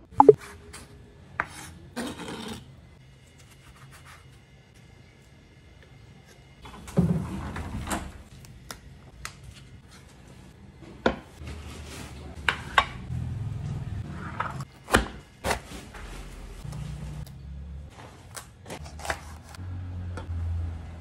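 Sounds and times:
knife cutting cabbage on board: 18.8 - 19.6.

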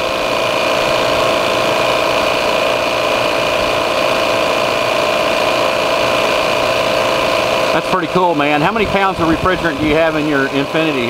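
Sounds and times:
recovery machine hum and whine: 0.0 - 11.0.

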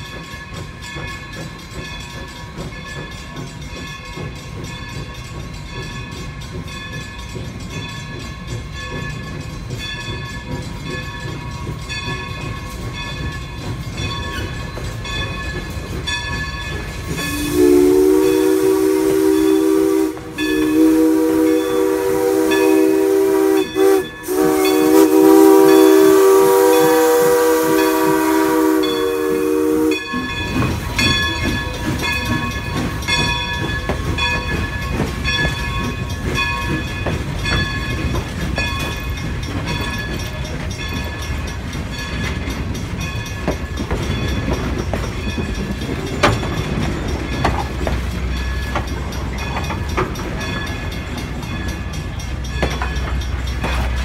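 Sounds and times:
steam locomotive rumbling: 0.0 - 54.0
steam hissing: 0.1 - 54.0
steam whistle blasts: 17.1 - 30.3.

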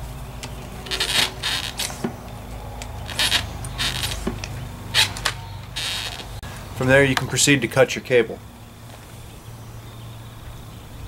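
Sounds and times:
seatpost scraping and clicking: 0.4 - 6.4.

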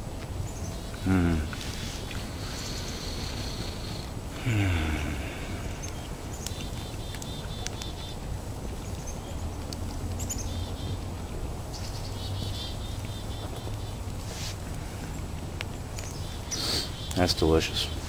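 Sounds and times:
small birds chirping: 0.0 - 18.0
man humming while chewing: 0.9 - 6.8.

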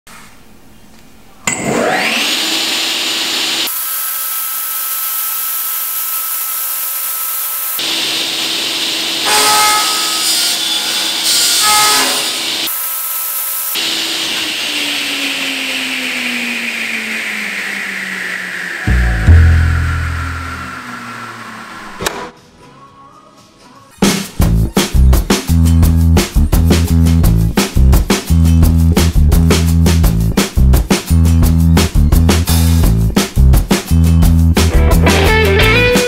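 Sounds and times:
panel saw motor whining: 1.5 - 3.7, 4.3 - 11.2, 13.8 - 22.3.

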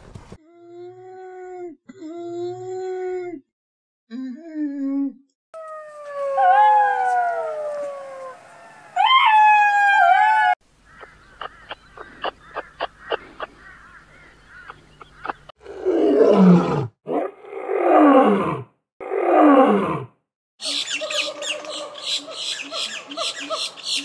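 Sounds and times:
lion roaring: 15.6 - 20.1.

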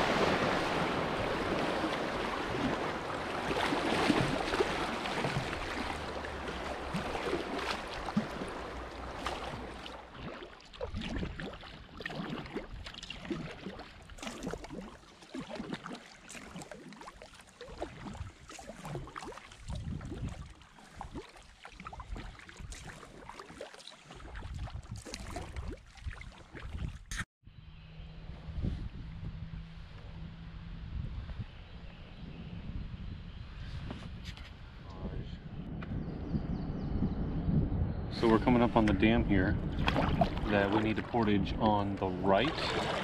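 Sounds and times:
rushing water: 0.0 - 27.0, 38.2 - 43.0
paddle splashing in water: 0.0 - 27.2, 39.7 - 43.0.

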